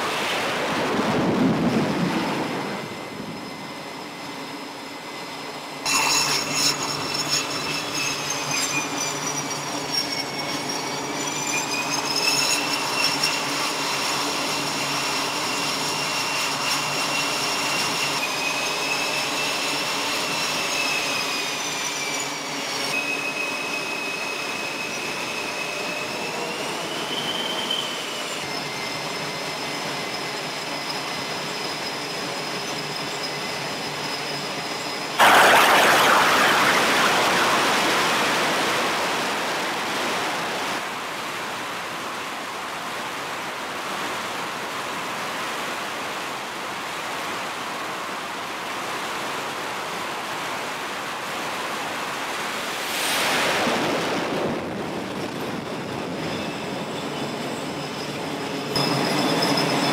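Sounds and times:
jet turbine engines whining: 0.0 - 43.4.

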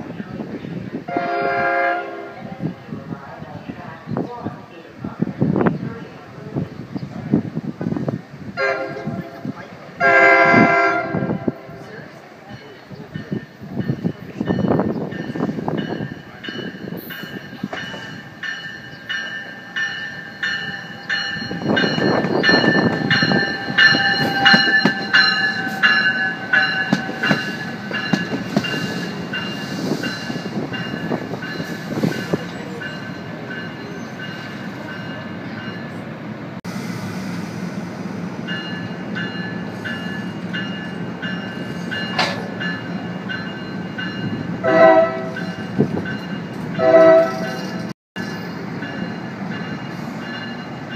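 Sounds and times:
train passing with rumbling wheels: 0.0 - 50.9
train horn: 1.1 - 2.5, 8.6 - 9.4, 10.0 - 11.8, 44.6 - 45.4, 46.8 - 47.6
bell ringing: 13.2 - 36.0.

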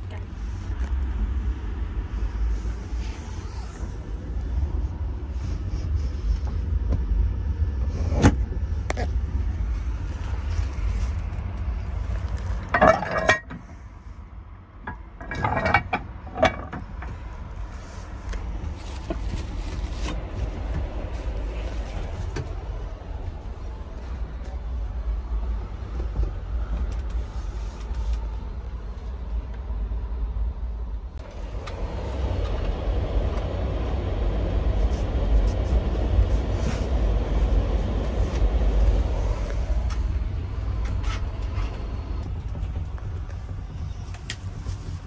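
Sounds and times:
low train rumble: 0.0 - 45.0
clattering and rustling: 7.8 - 14.0, 14.8 - 22.8.

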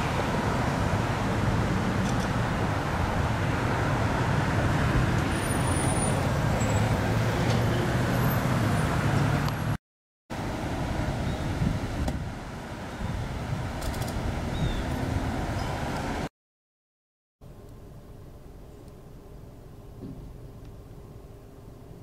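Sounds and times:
car engines rumbling: 0.0 - 9.8, 10.4 - 16.3
road traffic: 0.0 - 16.3, 17.4 - 22.0.

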